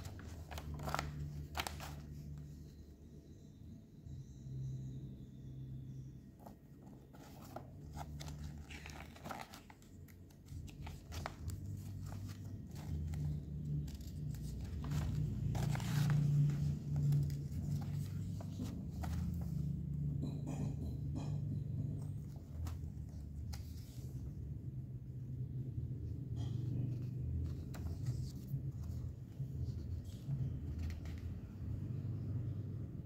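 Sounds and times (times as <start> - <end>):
paper pages rustling: 0.0 - 2.5, 6.4 - 19.8, 22.2 - 24.4, 26.8 - 31.6.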